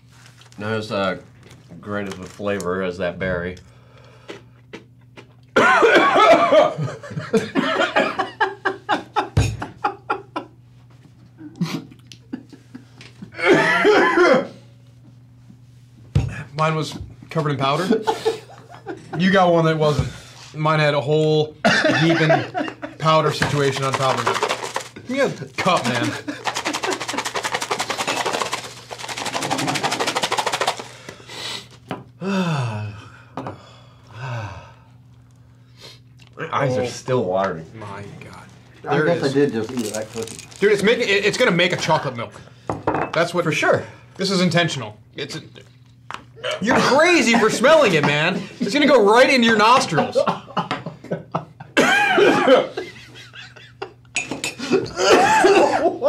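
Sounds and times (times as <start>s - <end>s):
men laughing hard: 5.6s - 10.6s, 11.5s - 14.5s, 17.8s - 19.2s, 21.6s - 23.0s, 25.8s - 27.6s, 49.9s - 56.0s
fast rattling clatter: 23.4s - 31.0s
man groaning: 32.2s - 33.1s.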